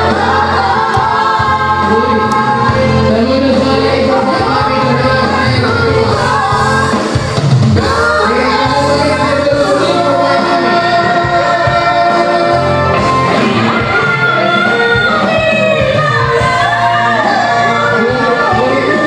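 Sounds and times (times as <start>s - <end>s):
electronic keyboard with bass: 0.0s - 19.0s.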